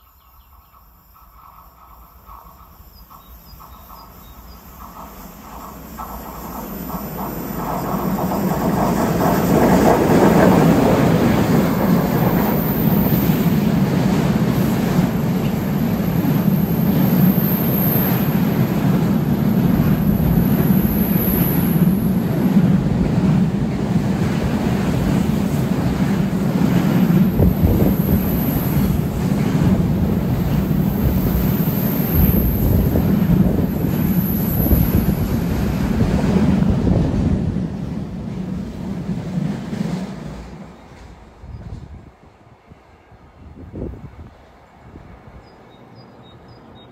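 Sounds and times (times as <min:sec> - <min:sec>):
freight train rumbling past: 0:00.0 - 0:46.9.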